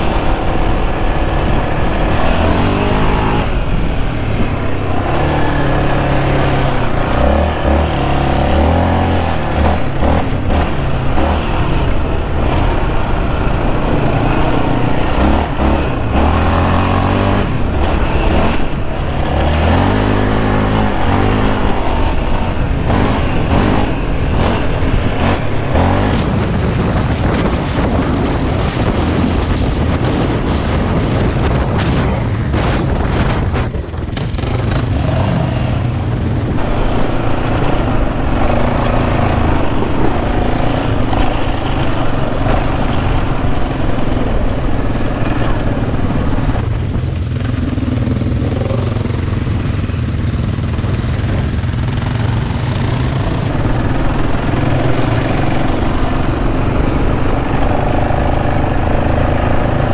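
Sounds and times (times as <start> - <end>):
atv engine revving: 0.0 - 26.4, 33.6 - 59.9.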